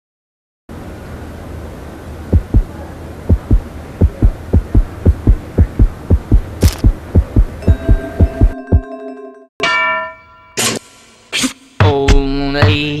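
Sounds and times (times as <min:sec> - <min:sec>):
low steady hum: 0:00.7 - 0:08.6
heartbeat thumps: 0:02.3 - 0:08.9.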